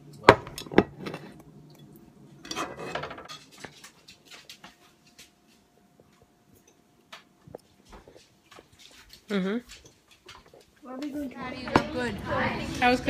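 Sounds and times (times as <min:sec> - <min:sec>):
plate and utensils clinking: 0:02.4 - 0:03.9.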